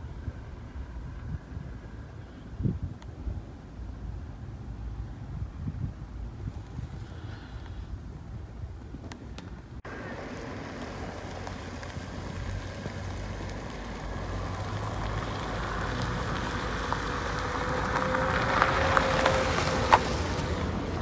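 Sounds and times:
car engine driving by: 9.9s - 21.0s.

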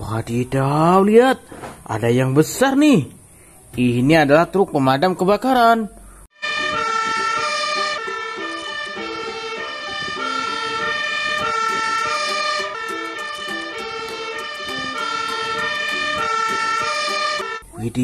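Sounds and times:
fire engine two-tone siren: 6.4s - 17.6s.

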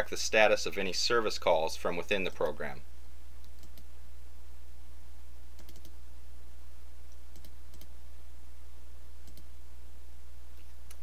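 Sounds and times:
low electrical hum: 0.0s - 11.0s
computer mouse clicks: 3.4s - 3.9s, 5.6s - 6.0s, 7.1s - 7.9s, 9.2s - 9.6s, 10.6s - 11.0s.

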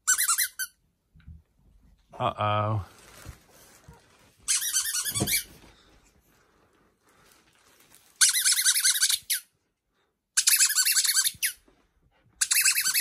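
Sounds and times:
squeaky rubber toy squeaks: 0.0s - 0.8s, 4.4s - 5.6s, 8.2s - 9.6s, 10.4s - 11.7s, 12.4s - 13.0s.

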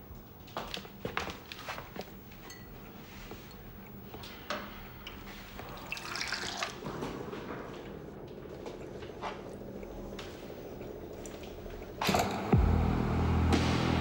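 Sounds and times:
water running into a cup: 5.7s - 6.8s.

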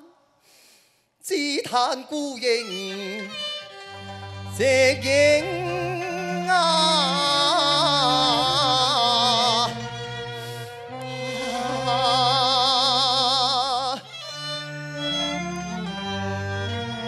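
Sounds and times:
instrumental accompaniment: 2.8s - 13.2s, 14.1s - 17.0s
opera singing with vibrato: 4.4s - 14.1s.

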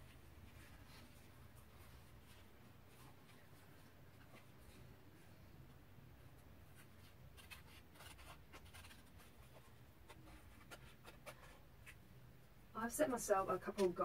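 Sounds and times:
paper sticker sheet crinkling: 7.0s - 12.0s.

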